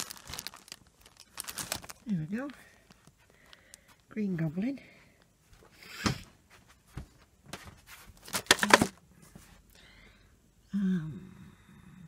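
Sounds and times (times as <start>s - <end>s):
plastic bag crinkling: 0.0s - 4.1s, 8.2s - 9.0s
woman humming: 10.7s - 12.0s.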